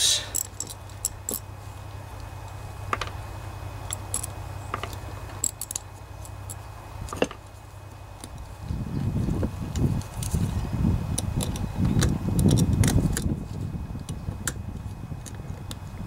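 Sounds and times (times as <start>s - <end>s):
steady low hum: 0.0s - 16.0s
metallic clicks of small parts: 0.3s - 1.5s, 3.8s - 7.4s, 11.2s - 13.3s.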